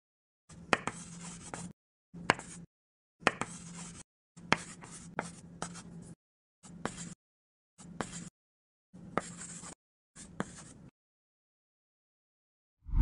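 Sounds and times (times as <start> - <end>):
chalk scratching on blackboard: 0.7 - 1.7, 2.3 - 2.6, 3.2 - 6.0, 6.6 - 7.2, 7.8 - 8.3, 9.2 - 10.9
chalk tapping: 2.3 - 2.6, 3.2 - 5.8.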